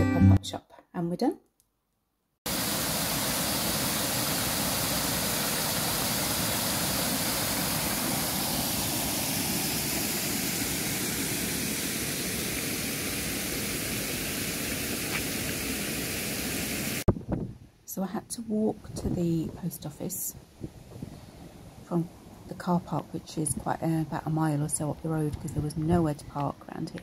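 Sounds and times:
waterfall rushing water: 0:02.5 - 0:17.0.

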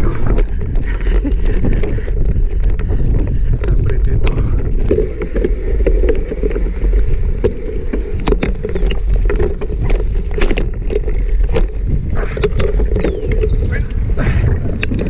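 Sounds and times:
bike clicks and rattles: 0:00.0 - 0:15.0
bike tyres rumbling on dirt: 0:00.0 - 0:15.0.

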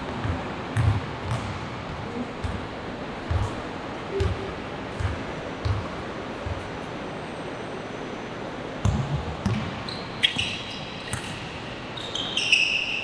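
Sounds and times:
basketball bouncing on court: 0:00.0 - 0:06.7, 0:08.8 - 0:12.5
gym background noise: 0:00.0 - 0:13.0
sneakers squeaking on floor: 0:08.8 - 0:13.0.

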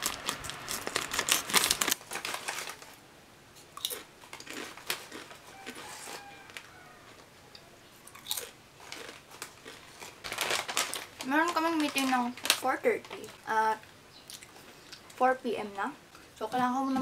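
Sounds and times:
scissors cutting foil bag: 0:00.0 - 0:02.9, 0:10.0 - 0:13.4.

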